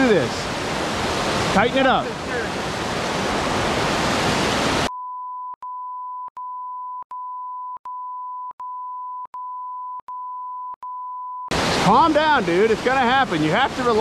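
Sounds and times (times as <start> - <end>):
river water rushing over rocks: 0.0 - 4.9, 11.5 - 14.0
steady beep tone: 4.9 - 11.5.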